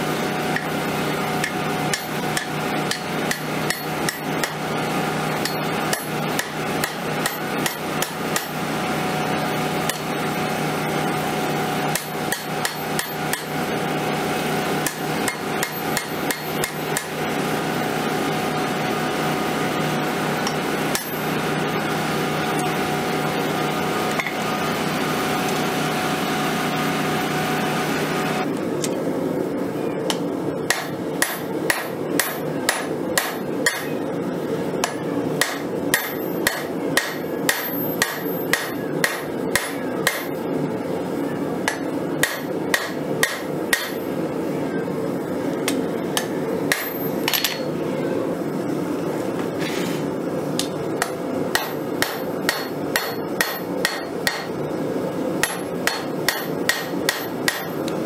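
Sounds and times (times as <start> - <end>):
hammer striking hot steel on anvil: 1.4 - 4.6, 5.3 - 8.6, 9.8 - 10.1, 11.9 - 13.6, 14.8 - 17.2, 20.4 - 21.3, 24.1 - 24.4, 30.1 - 34.0, 34.8 - 40.4, 41.6 - 44.1, 45.7 - 47.7, 50.6 - 54.6, 55.4 - 58.0.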